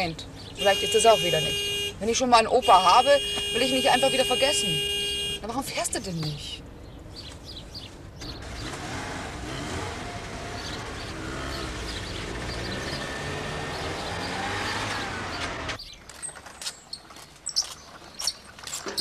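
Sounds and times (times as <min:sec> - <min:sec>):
car engine accelerating: 0:08.2 - 0:15.8.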